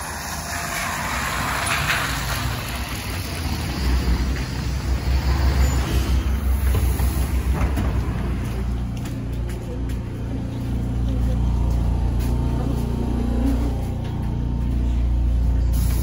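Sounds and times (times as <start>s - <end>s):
trolleybus pulling in: 0.0s - 16.0s
low uneven rumbling and bumping: 1.7s - 15.6s
compressed air hiss: 15.7s - 16.0s.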